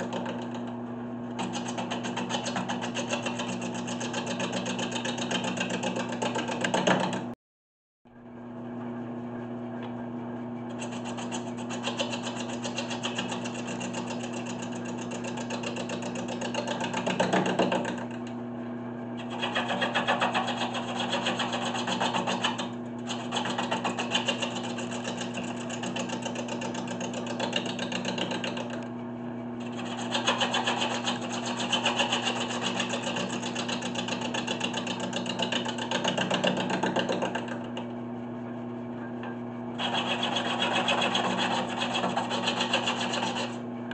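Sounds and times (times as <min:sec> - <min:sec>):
turning tool scraping wood: 0:00.0 - 0:07.3, 0:10.7 - 0:18.3, 0:19.2 - 0:28.8, 0:29.6 - 0:37.9, 0:39.8 - 0:43.7
lathe motor humming: 0:39.2 - 0:43.9.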